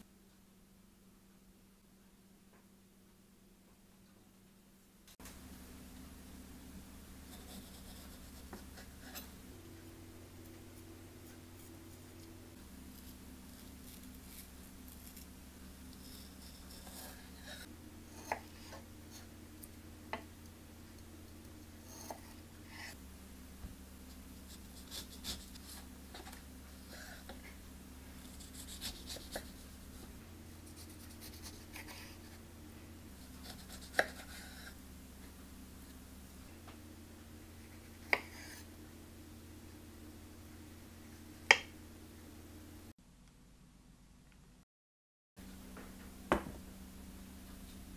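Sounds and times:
knife cutting fruit: 12.9s - 20.2s, 24.1s - 27.5s, 28.2s - 29.7s, 33.2s - 34.8s
knife knocking on cutting board: 46.3s - 46.6s.

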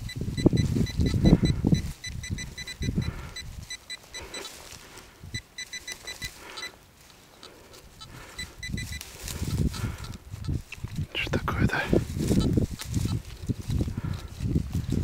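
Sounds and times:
metal detector beeping: 0.0s - 6.8s, 7.9s - 10.2s
soil and glove rustling: 0.0s - 15.0s.

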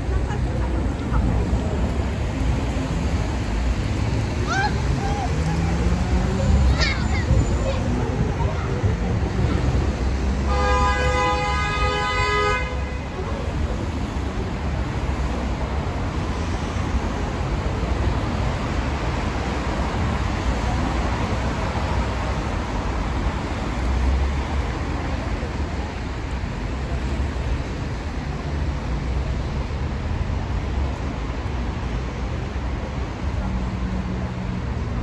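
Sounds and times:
street traffic rumble: 0.0s - 35.0s
vehicle horn: 10.4s - 13.1s.

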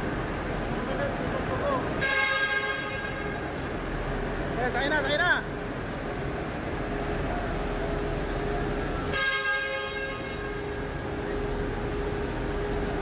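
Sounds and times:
steady hum: 0.0s - 13.0s
bus horn honk: 2.0s - 3.6s, 9.0s - 10.8s.

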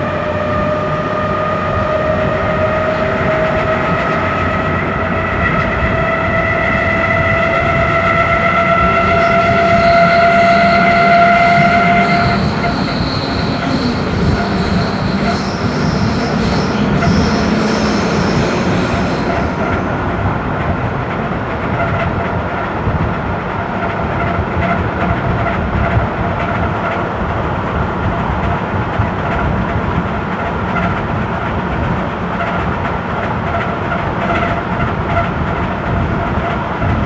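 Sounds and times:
train wheels rumbling on rails: 0.0s - 37.0s
rail joints clicking: 1.9s - 23.0s.

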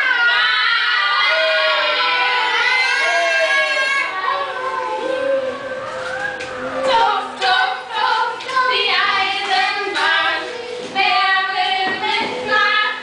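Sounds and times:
group singing: 4.0s - 13.0s.

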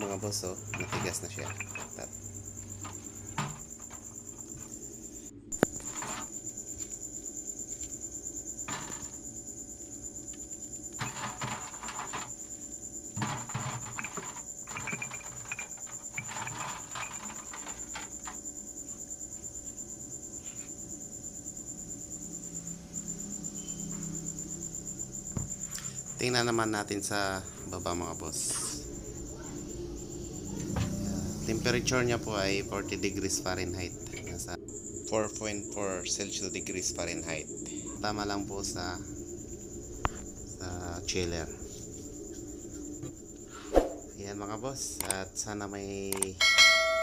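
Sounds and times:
crickets chirring: 0.0s - 47.0s
sharp click: 46.1s - 46.3s.

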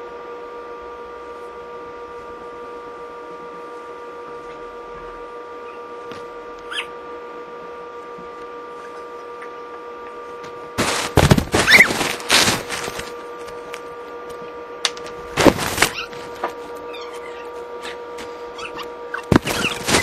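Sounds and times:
steady hum: 0.0s - 20.0s
foam crackling and squeaking: 10.8s - 13.2s, 15.4s - 17.6s, 18.6s - 20.0s.

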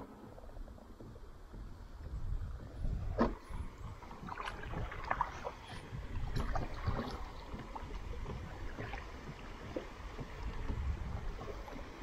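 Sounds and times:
low rumble of moving water: 0.0s - 12.0s
paddle splashing in water: 0.0s - 12.0s
wind: 0.0s - 12.0s.

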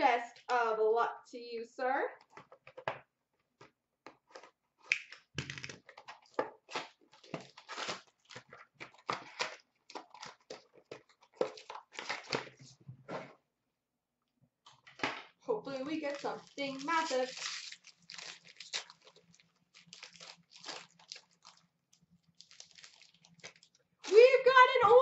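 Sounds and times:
crinkling and tearing wrapping: 4.2s - 12.6s, 15.7s - 24.3s.

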